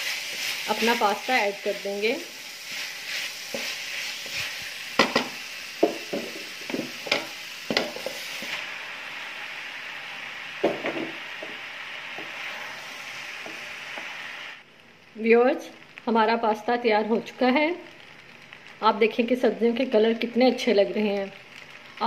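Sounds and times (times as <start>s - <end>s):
wooden spoon scraping a pan: 0.0s - 8.6s
food sizzling in a metal pan: 0.0s - 22.0s.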